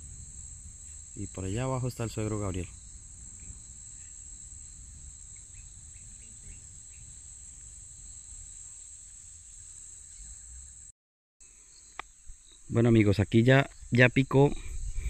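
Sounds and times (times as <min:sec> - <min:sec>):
faint low rumble: 0:00.0 - 0:08.4
high-pitched insect drone: 0:00.0 - 0:10.9.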